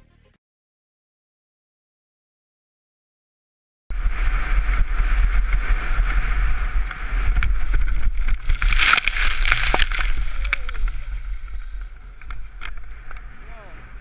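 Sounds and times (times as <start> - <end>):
skier crashing into snow: 3.9 - 11.2
wind buffeting camera: 3.9 - 14.0
skis scraping over snow: 4.0 - 14.0.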